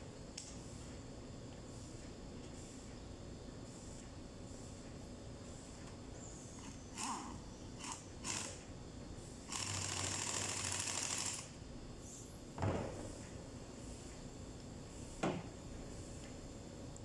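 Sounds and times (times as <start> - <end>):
pneumatic impact wrench hammering: 6.6 - 8.7, 9.5 - 11.6.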